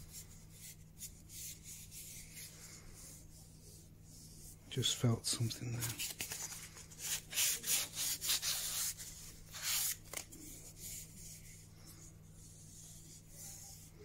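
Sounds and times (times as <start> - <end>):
sandpaper rubbing wood: 7.0 - 10.0.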